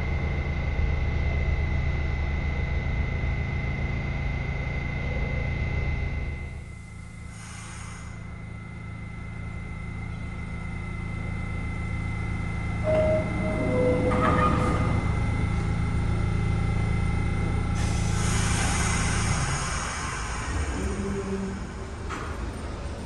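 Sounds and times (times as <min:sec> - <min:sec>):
subway train humming: 0:00.0 - 0:23.0
hiss of air: 0:07.2 - 0:08.3, 0:17.8 - 0:21.8
two-note door chime: 0:12.9 - 0:15.2.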